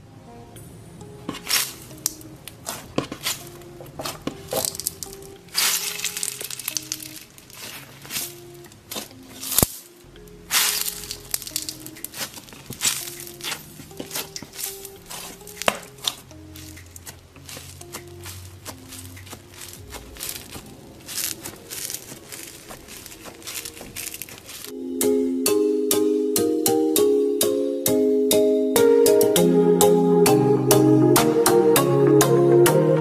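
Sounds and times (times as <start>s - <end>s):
soft background music: 0.0s - 33.0s
foam toys squelching: 1.3s - 24.7s.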